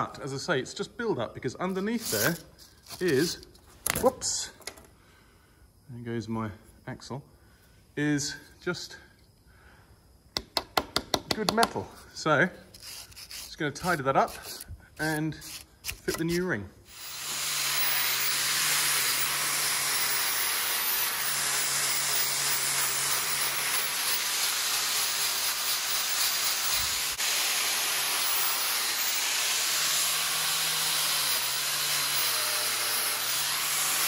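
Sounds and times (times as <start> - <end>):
angle grinder grinding steel: 12.7 - 34.0.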